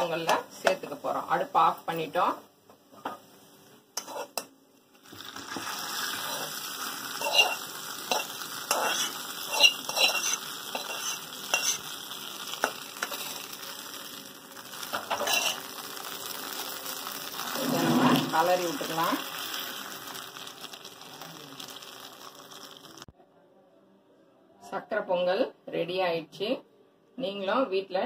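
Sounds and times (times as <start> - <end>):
hot ghee sizzling: 0.0 - 23.1
metal spoon scraping a pan: 4.0 - 4.5, 6.0 - 13.6, 14.9 - 15.8, 17.4 - 19.8.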